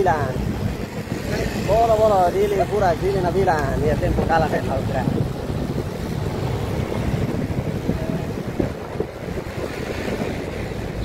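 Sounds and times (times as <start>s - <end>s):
street traffic rumble: 0.0s - 11.0s
wind buffeting microphone: 0.0s - 11.0s.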